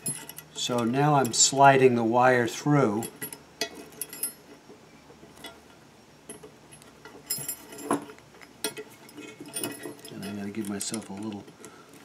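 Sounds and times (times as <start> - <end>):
wire rope clicking and clinking: 0.0 - 1.5, 5.3 - 11.8.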